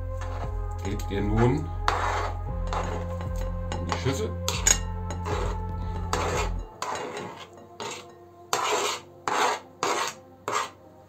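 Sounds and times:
low hum: 0.0s - 8.4s
scraping on plastic cutting board: 1.9s - 3.1s, 6.1s - 10.8s.

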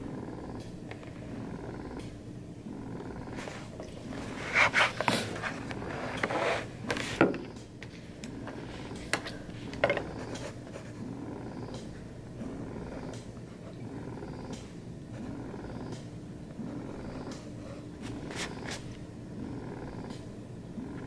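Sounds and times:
steady low hum: 0.0s - 21.0s
paper and pen rustling: 4.3s - 7.2s, 18.0s - 19.0s.

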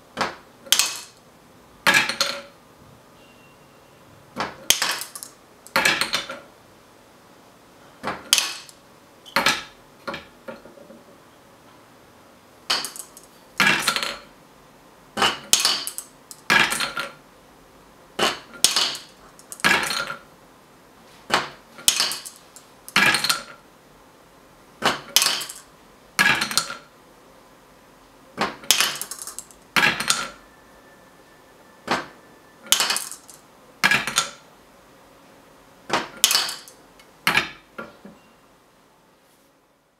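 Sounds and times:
marbles clattering through wooden toy: 0.7s - 1.2s, 4.7s - 6.3s, 8.3s - 8.8s, 12.7s - 14.2s, 15.2s - 17.2s, 18.2s - 20.2s, 21.8s - 23.5s, 25.1s - 26.9s, 28.7s - 30.4s, 32.6s - 34.4s, 36.2s - 36.8s.

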